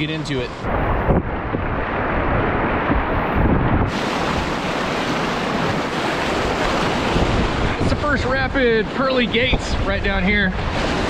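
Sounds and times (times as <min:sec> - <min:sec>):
whitewater rushing: 0:00.6 - 0:11.0
wind noise on microphone: 0:00.6 - 0:11.0.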